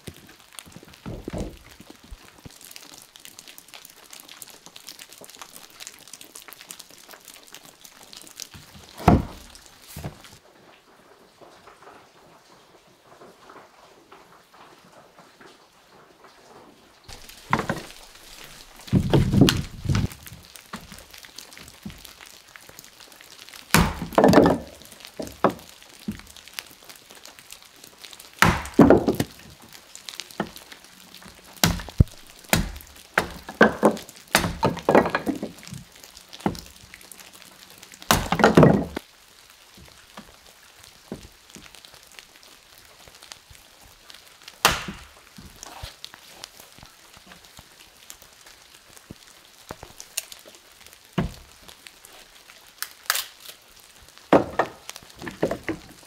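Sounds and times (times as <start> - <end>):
wood cracking apart: 0.0 - 10.4, 17.1 - 56.0
wood pieces clattering: 0.0 - 10.4, 17.1 - 39.0, 54.3 - 56.0
axe chopping wood: 8.9 - 10.2, 17.1 - 17.9, 18.8 - 20.1, 23.7 - 25.7, 28.4 - 29.4, 31.6 - 35.7, 38.1 - 39.0, 44.6 - 45.2, 54.3 - 55.8.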